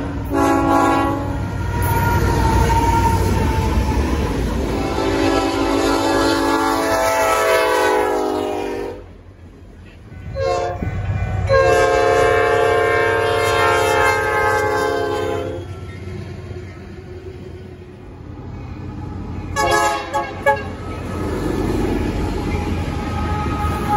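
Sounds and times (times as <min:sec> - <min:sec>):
locomotive air horn blasts: 0:00.2 - 0:03.3, 0:04.7 - 0:09.1, 0:10.1 - 0:15.8, 0:19.5 - 0:21.1, 0:23.0 - 0:23.9.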